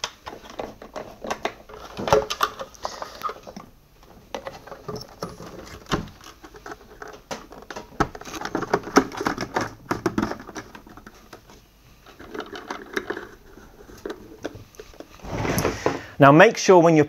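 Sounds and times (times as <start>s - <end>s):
plastic housing clicking and rattling: 4.3s - 15.1s.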